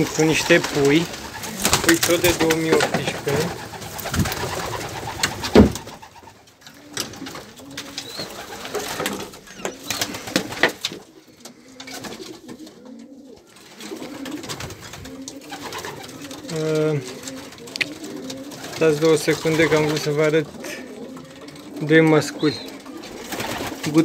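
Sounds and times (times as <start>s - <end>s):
pigeons cooing: 0.0s - 24.0s
sharp knock: 5.5s - 5.8s.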